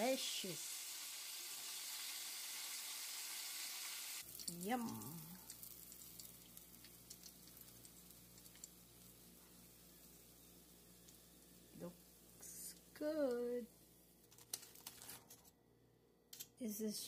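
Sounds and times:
chicken sizzling in oil: 0:00.0 - 0:13.6
faint crackles: 0:04.2 - 0:10.3.

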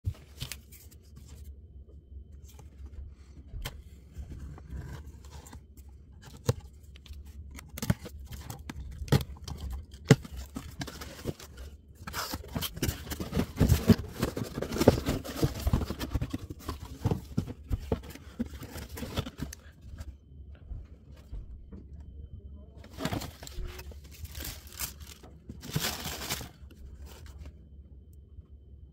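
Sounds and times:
cardboard tearing and rustling: 0:07.5 - 0:19.7, 0:22.8 - 0:27.4.

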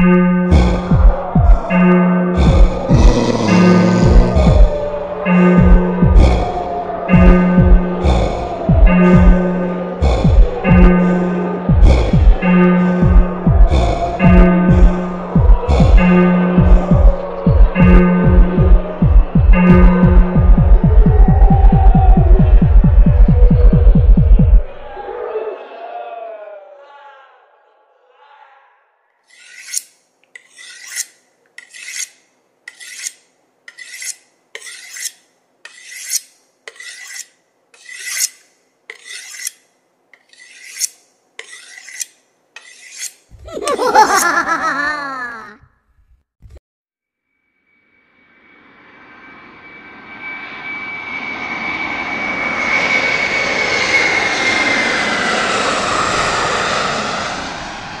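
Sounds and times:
rhythmic rasping strokes: 0:02.4 - 0:20.9
aircraft high whine: 0:02.7 - 0:12.7, 0:47.7 - 0:58.0
aircraft rushing past: 0:48.4 - 0:58.0.

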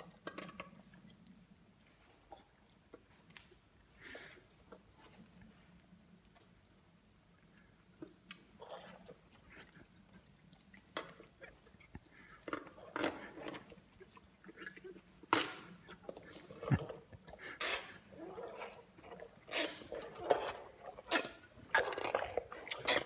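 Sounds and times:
elephant crunching watermelon: 0:07.8 - 0:23.0.

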